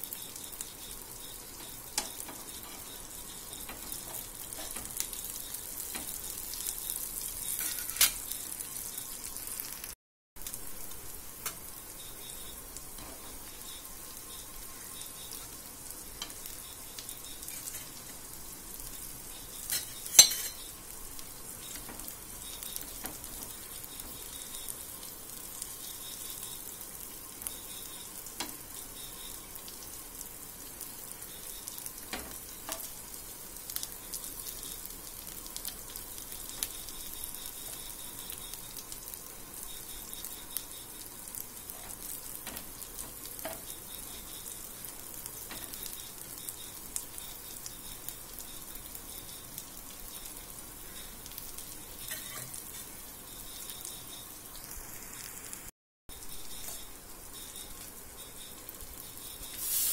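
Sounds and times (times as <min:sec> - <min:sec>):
food sizzling in hot oil: 0:00.0 - 0:59.9
metal spatula stirring: 0:07.5 - 0:08.3, 0:19.7 - 0:20.7.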